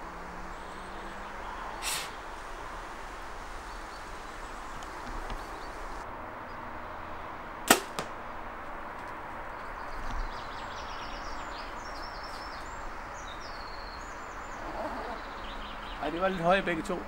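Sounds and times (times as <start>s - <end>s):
arrow hitting foam target: 7.7s - 8.2s.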